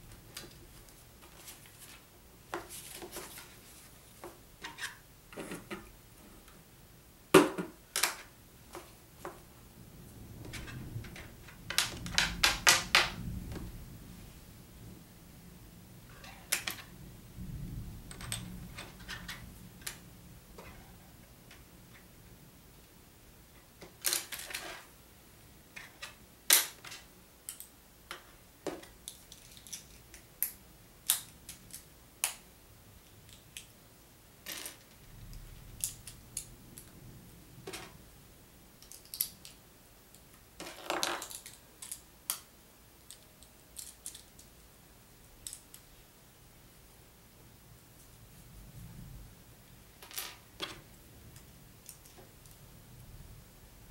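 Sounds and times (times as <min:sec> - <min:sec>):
plastic pieces clicking together: 0:38.8 - 0:44.5
plastic pieces clattering: 0:40.6 - 0:42.0.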